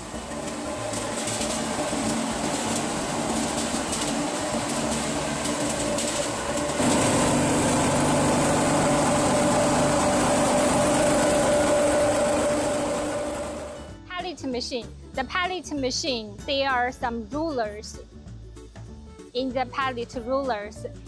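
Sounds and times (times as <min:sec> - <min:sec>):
conveyor motor humming: 0:00.0 - 0:13.9.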